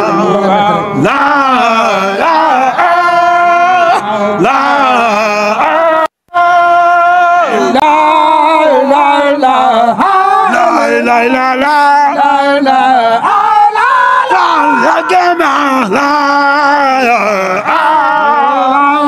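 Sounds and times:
men chanting: 0.0 - 19.0.

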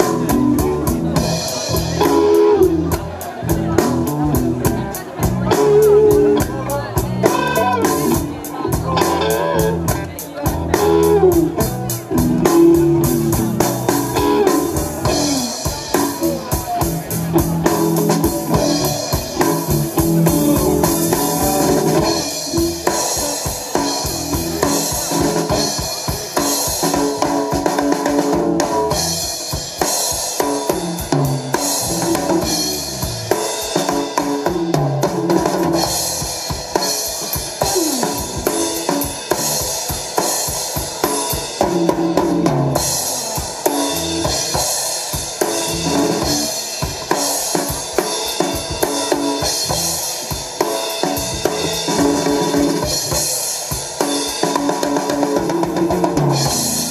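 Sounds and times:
dense drumming on drum kit: 0.0 - 56.9
electric guitar notes: 3.9 - 16.4, 55.7 - 56.9.

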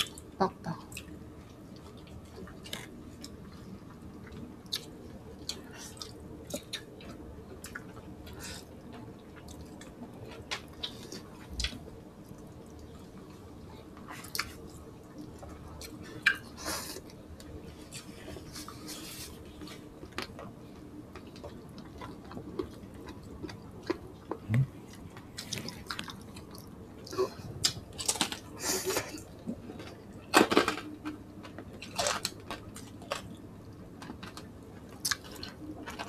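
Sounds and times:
faint steady hum: 0.0 - 36.0
wet chewing and lip smacks: 14.0 - 18.7, 21.1 - 28.4.

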